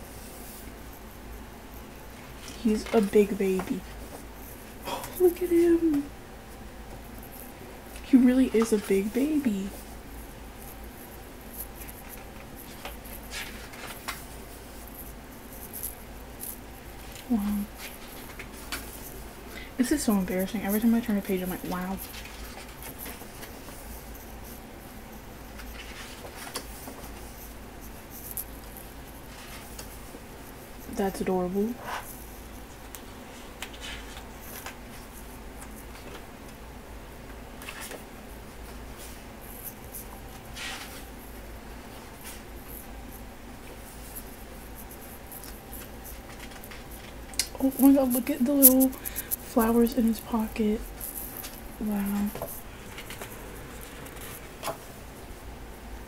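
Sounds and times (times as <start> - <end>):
faint low hum: 0.0 - 56.0
soft paper rustles: 10.6 - 30.2, 30.8 - 36.3, 37.6 - 38.1, 39.0 - 42.9, 43.6 - 55.0
book pages turning: 11.8 - 14.3
paper page rustling: 11.8 - 14.9, 19.8 - 23.9, 33.4 - 36.2, 45.3 - 54.9.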